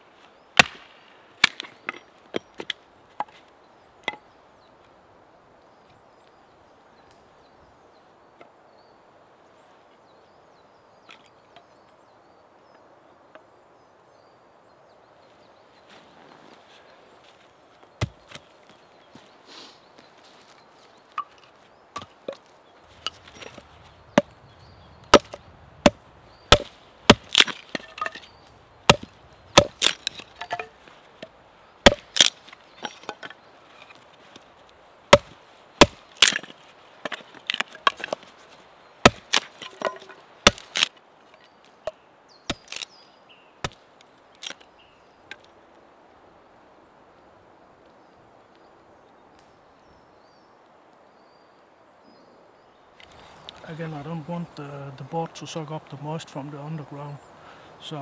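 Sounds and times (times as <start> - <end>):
axe chopping wood: 0.6 - 3.4, 18.0 - 18.3, 25.0 - 28.3, 28.9 - 30.8, 31.8 - 33.3, 35.1 - 38.3, 39.0 - 40.9.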